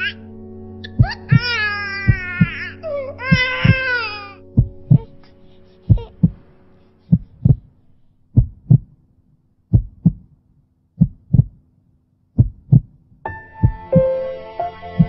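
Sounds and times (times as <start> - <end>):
soft music: 0.0 - 8.1, 13.3 - 15.0
faint low hum: 0.0 - 15.0
heart beating: 1.0 - 2.6, 3.3 - 4.0, 4.6 - 5.2, 5.9 - 6.4, 7.1 - 7.7, 8.3 - 9.0, 9.7 - 10.4, 11.0 - 11.6, 12.4 - 13.0, 13.6 - 14.1.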